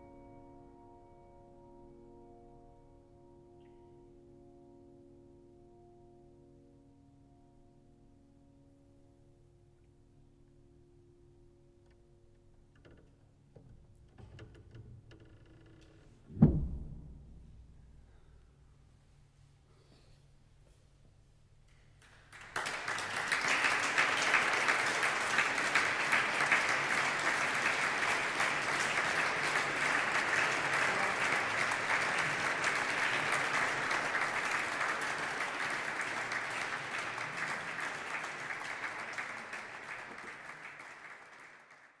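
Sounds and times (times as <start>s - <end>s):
audience applauding: 21.9s - 42.0s.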